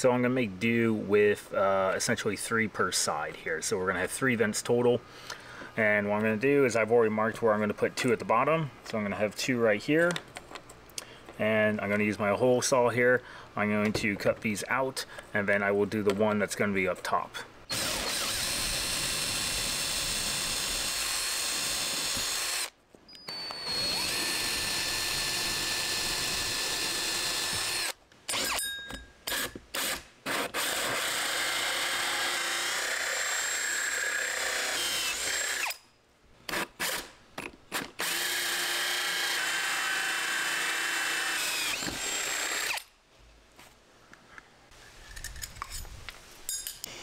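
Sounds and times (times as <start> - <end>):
cordless drill boring into door: 17.7 - 22.7, 23.3 - 28.6, 29.3 - 35.8, 38.0 - 42.9.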